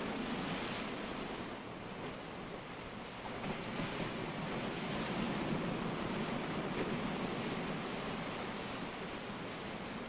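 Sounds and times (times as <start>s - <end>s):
sea surf rushing: 0.0s - 10.0s.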